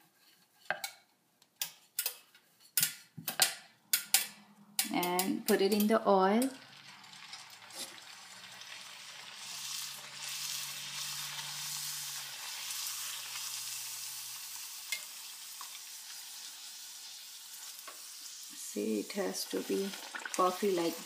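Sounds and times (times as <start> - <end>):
food sizzling in hot oil: 6.3 - 21.0.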